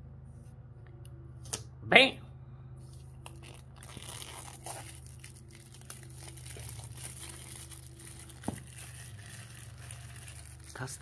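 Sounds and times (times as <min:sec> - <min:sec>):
plastic wrap crinkling: 0:03.2 - 0:11.0.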